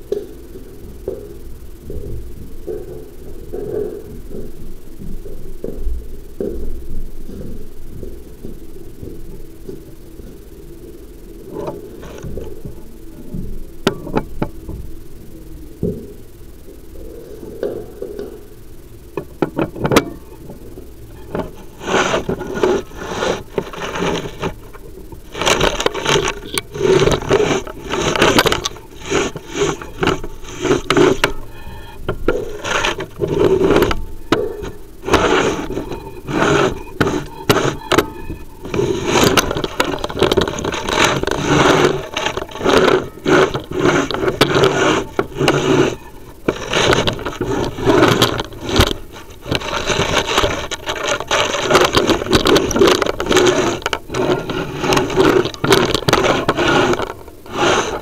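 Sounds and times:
camera scraping inside flue: 0:00.0 - 0:58.0
clicks: 0:19.2 - 0:58.0.

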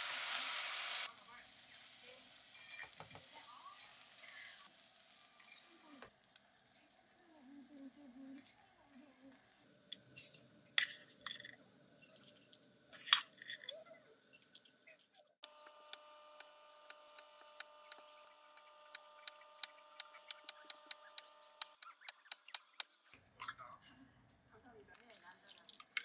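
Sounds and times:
faint steady hum: 0:15.4 - 0:22.9.

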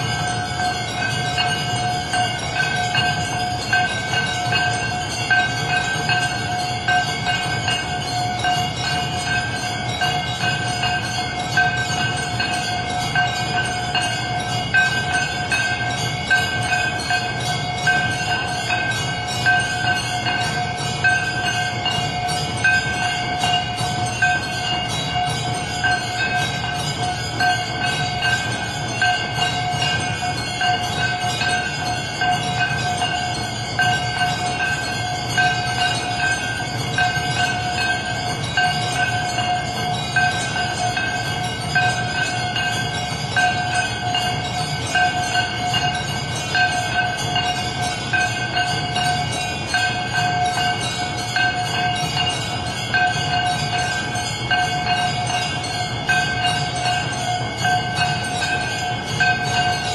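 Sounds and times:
temple bells ringing: 0:00.0 - 0:59.9.

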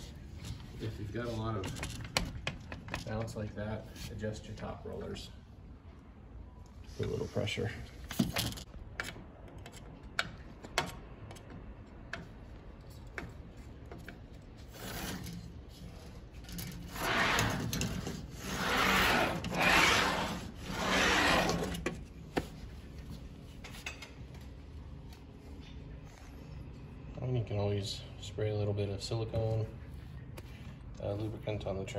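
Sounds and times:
sliding screen door rolling: 0:14.7 - 0:15.5, 0:16.4 - 0:22.0.

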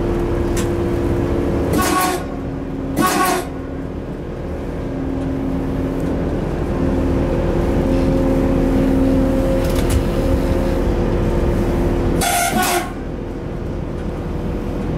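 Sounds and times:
electric locomotive drive hum: 0:00.0 - 0:14.9
short air blasts: 0:03.0 - 0:03.5, 0:12.2 - 0:13.0.

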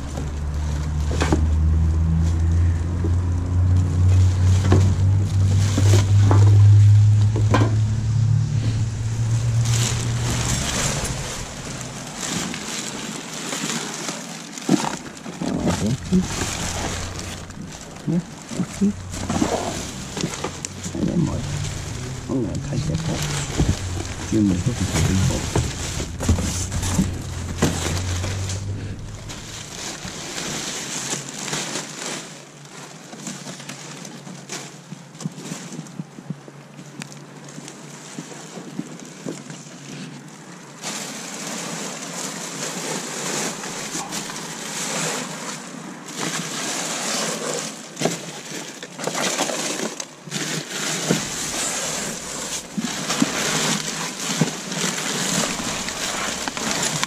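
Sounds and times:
cardboard boxes rustling and crinkling: 0:00.0 - 0:57.0.

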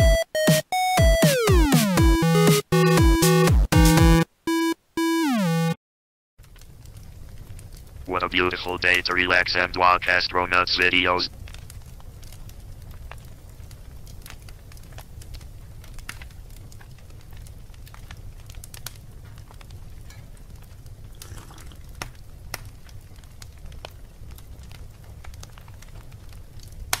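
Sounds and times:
fireplace fire crackling: 0:06.4 - 0:27.0.

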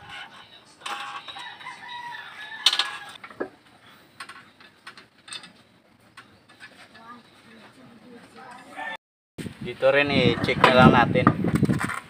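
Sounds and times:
rooster crowing: 0:01.2 - 0:03.2, 0:08.6 - 0:09.0.

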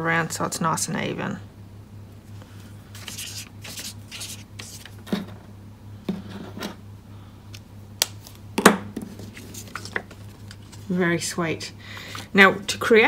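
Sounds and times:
paper handling: 0:02.6 - 0:05.2, 0:09.1 - 0:11.0.

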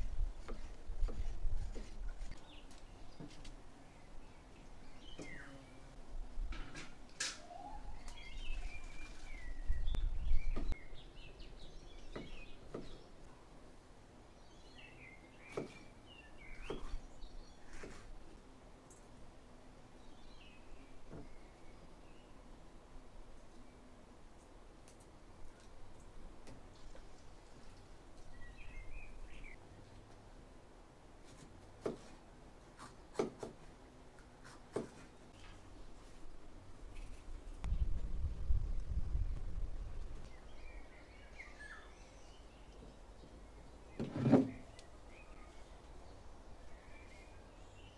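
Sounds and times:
birds chirping and singing: 0:07.4 - 0:13.1
bird chirping: 0:40.2 - 0:47.9.

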